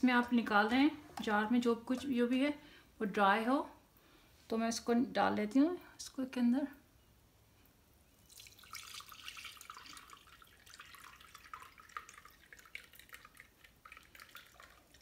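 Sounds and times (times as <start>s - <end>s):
liquid trickling and dripping: 8.2s - 15.0s.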